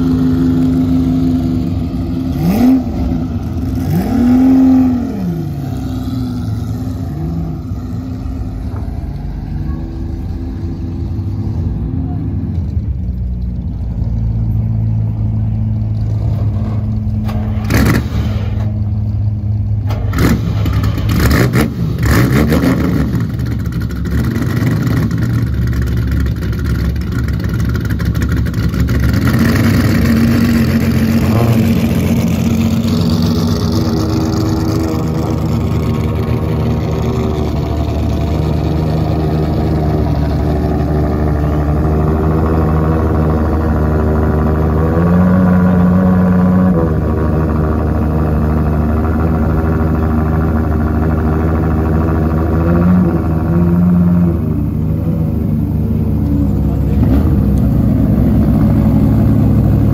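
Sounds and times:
higher steady engine note: 0:00.0 - 0:22.1, 0:23.1 - 0:59.9
engine throttle blips: 0:00.0 - 0:59.9
car engine idling: 0:18.5 - 0:21.3, 0:23.2 - 0:29.3, 0:29.9 - 0:44.8, 0:47.0 - 0:59.9.

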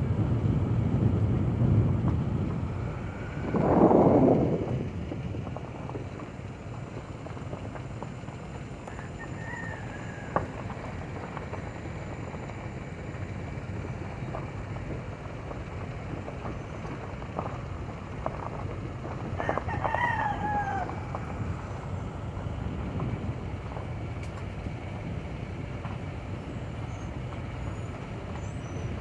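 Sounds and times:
low vehicle rumble: 0:00.0 - 0:29.0
rooster crowing: 0:08.9 - 0:10.7, 0:19.4 - 0:21.2.

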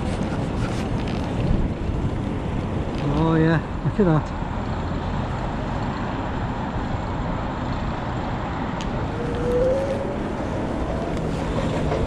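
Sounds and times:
wind and road noise: 0:00.0 - 0:12.0
short rising tone: 0:08.9 - 0:12.0.

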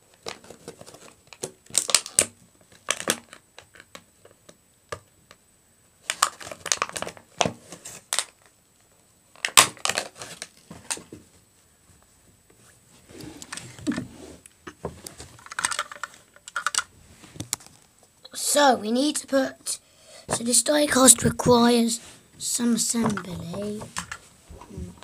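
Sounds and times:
packaging crinkling: 0:00.1 - 0:03.8, 0:06.1 - 0:08.5, 0:09.4 - 0:10.6, 0:15.3 - 0:16.9.

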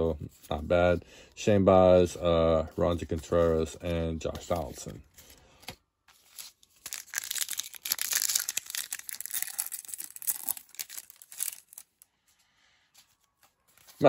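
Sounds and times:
foil wrapper tearing and crinkling: 0:06.2 - 0:12.1.

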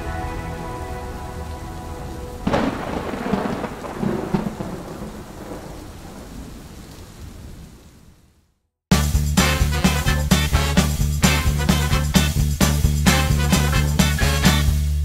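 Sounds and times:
held music chords: 0:00.0 - 0:03.1, 0:08.9 - 0:15.0
rolling thunder rumbles: 0:00.0 - 0:08.2
thunderclap: 0:00.0 - 0:08.2
rain-like hiss: 0:00.0 - 0:08.6.

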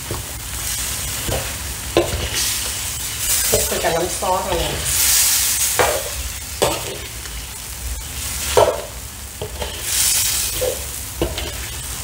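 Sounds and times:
frying hiss: 0:00.0 - 0:12.0
metal ladle scraping wok: 0:08.3 - 0:12.0.

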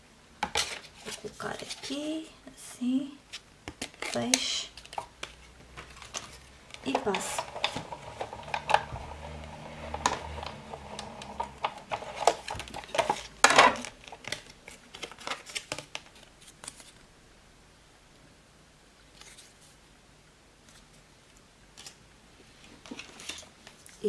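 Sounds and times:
plastic plates clicking and clattering: 0:04.8 - 0:16.1
hand-cranked machine rollers humming: 0:07.0 - 0:12.3.

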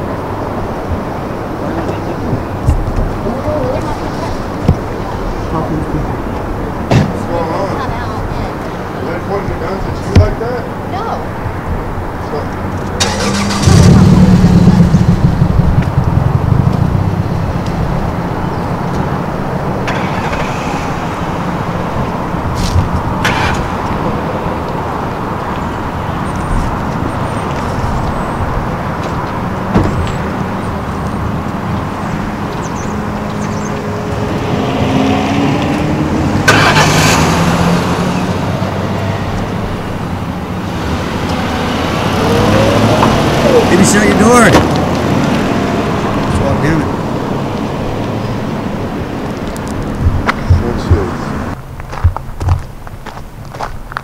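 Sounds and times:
cars driving past: 0:00.0 - 0:54.0.

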